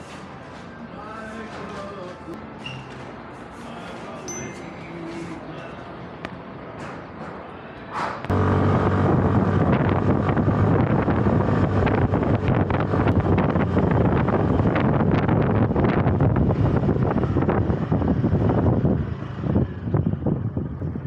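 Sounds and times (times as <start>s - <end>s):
low rumble: 8.3s - 21.0s
wind buffeting microphone: 8.3s - 21.0s.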